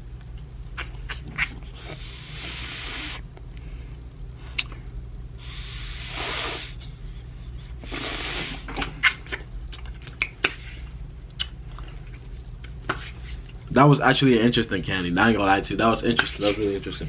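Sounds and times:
hissing breaths: 0:01.7 - 0:04.0, 0:05.4 - 0:08.8
wet mouth clicks and smacks: 0:08.8 - 0:10.6, 0:11.3 - 0:11.6.

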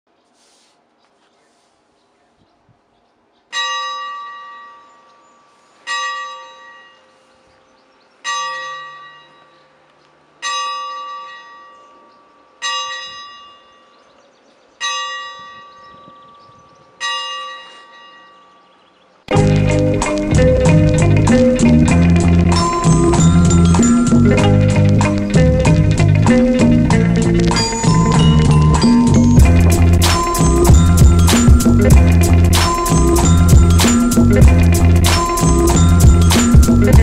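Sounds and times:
bell striking: 0:19.3 - 0:26.9, 0:27.5 - 0:37.0.

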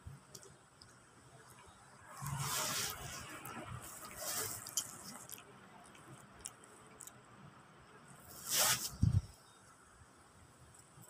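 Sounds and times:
scratchy rustle: 0:02.2 - 0:05.4, 0:08.3 - 0:09.3
puppy chewing bread: 0:03.1 - 0:07.2.

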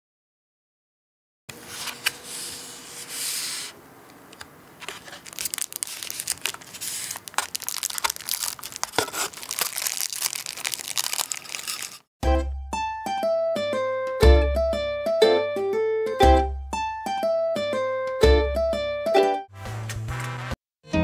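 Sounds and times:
plastic film rustling and crinkling: 0:04.8 - 0:12.1.

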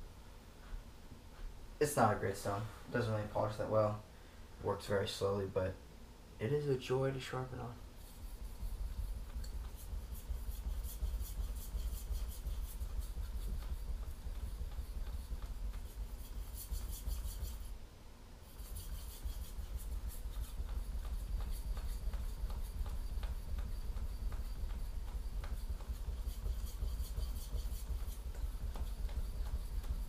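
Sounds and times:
knife scraping on whetstone: 0:18.5 - 0:20.7.

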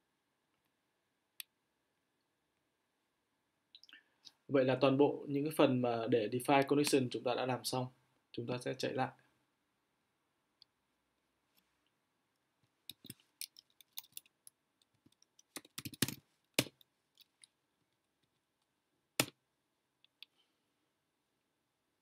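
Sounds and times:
computer keyboard typing: 0:15.4 - 0:16.8.

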